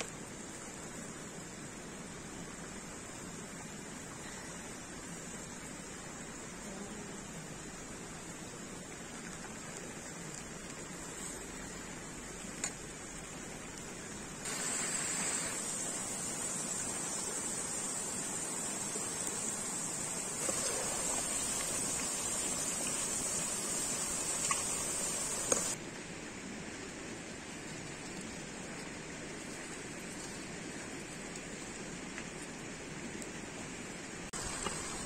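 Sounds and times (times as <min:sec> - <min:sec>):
faint outdoor background: 0:00.0 - 0:35.0
potatoes sizzling in hot oil: 0:12.1 - 0:25.8, 0:34.4 - 0:35.0.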